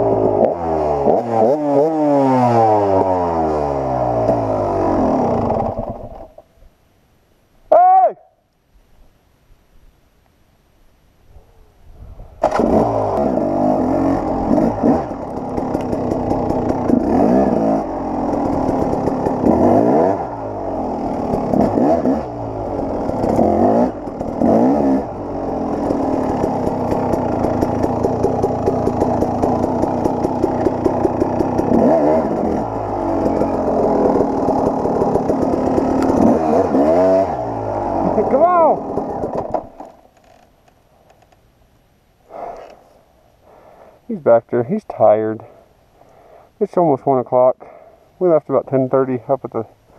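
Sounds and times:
two-stroke dirt bike engine revving: 0.0s - 6.4s, 12.4s - 39.8s.

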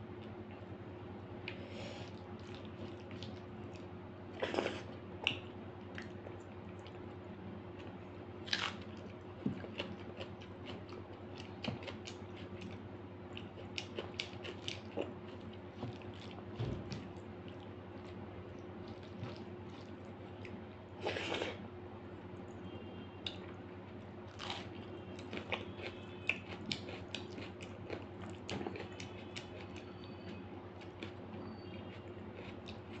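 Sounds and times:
chewing with wet smacks: 2.4s - 7.0s, 7.8s - 20.6s, 24.3s - 33.0s.

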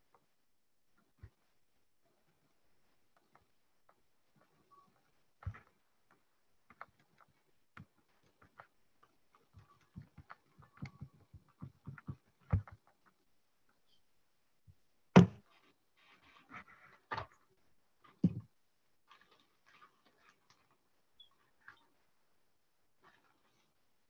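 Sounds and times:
small clicks and taps: 3.1s - 13.8s.

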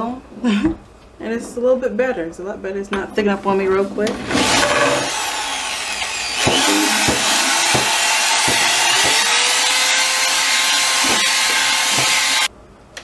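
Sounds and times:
electric drill whisk whining: 4.2s - 12.5s
sharp knocks: 6.4s - 9.3s.

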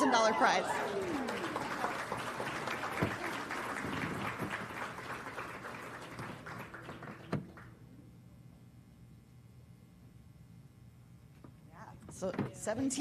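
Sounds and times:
crowd applauding: 0.0s - 7.8s.

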